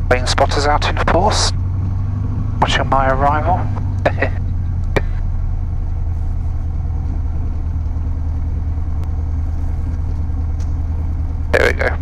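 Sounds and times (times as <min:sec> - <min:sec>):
airplane piston engine droning: 0:00.0 - 0:12.0.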